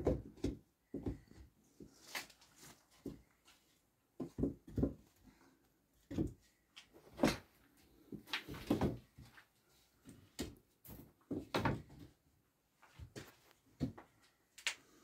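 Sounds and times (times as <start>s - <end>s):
short knocks and thumps: 4.2s - 5.1s.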